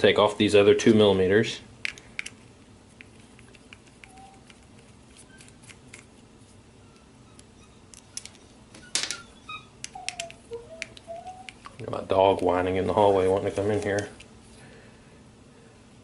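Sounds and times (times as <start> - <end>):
dog whining: 9.2 - 11.8.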